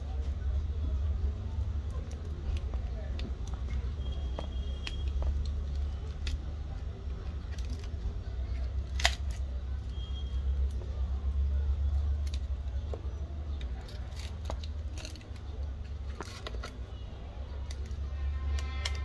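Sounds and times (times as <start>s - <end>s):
pry tool clicking and scraping: 1.9s - 9.5s.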